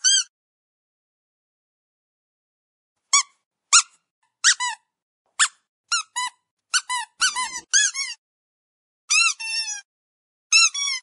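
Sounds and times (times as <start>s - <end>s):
squeaky dog toy squeaking: 0.0s - 0.3s, 3.1s - 8.2s, 9.1s - 9.9s, 10.5s - 11.0s.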